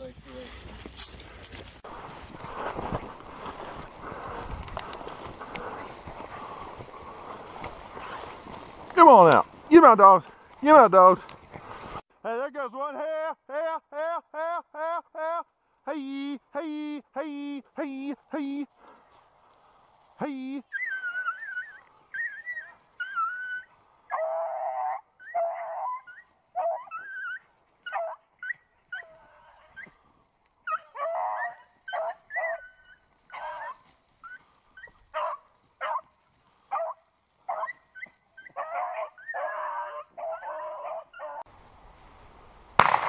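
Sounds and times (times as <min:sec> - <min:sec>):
hounds baying: 0:20.6 - 0:30.0, 0:30.6 - 0:41.4
dogs yelping: 0:20.7 - 0:30.0, 0:30.6 - 0:36.1, 0:36.7 - 0:41.4.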